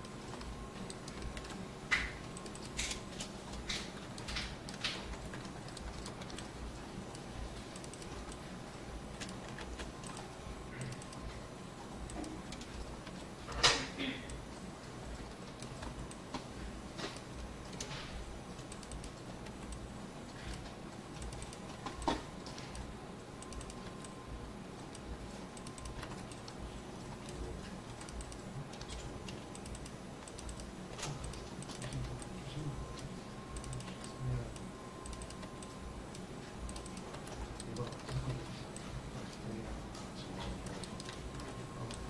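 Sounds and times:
mouse and keyboard clicks: 0.0 - 8.5, 9.2 - 11.4, 24.9 - 42.0
steady low hum: 0.0 - 42.0.

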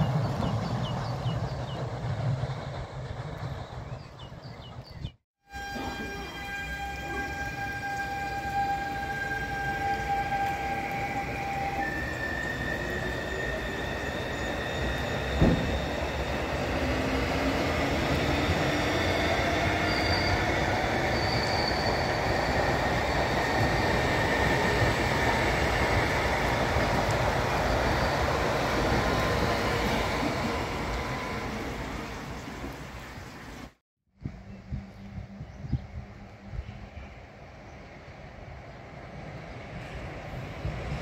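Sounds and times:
wheels rumbling on rail: 0.0 - 41.0
high squeals: 5.5 - 31.5
electric train drive whining: 5.5 - 32.4
sharp thump: 15.4 - 15.8.

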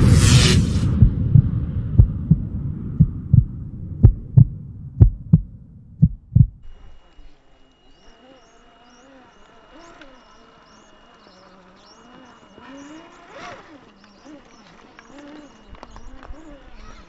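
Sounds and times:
heartbeat thumps: 0.0 - 6.7
low drone: 0.0 - 7.3
chirps: 6.6 - 17.0.

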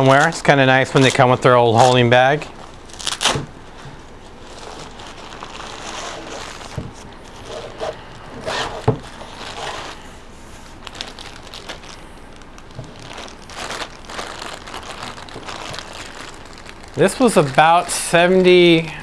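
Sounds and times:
plastic bag crinkling: 0.0 - 18.9
nylon case rustling: 2.9 - 17.4.

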